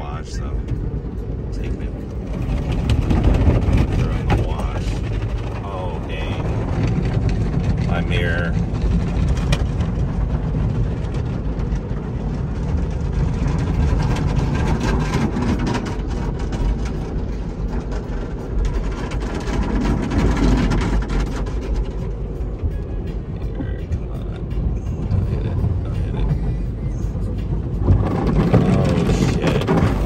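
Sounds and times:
wash machinery and water drone: 0:00.0 - 0:30.0
car wash brushes slapping: 0:27.1 - 0:30.0.

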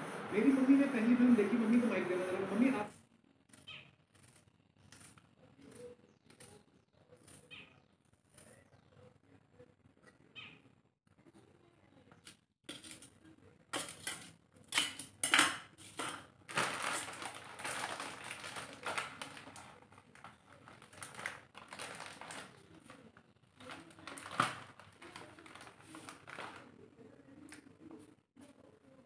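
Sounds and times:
plastic packet rustling: 0:15.9 - 0:26.8.

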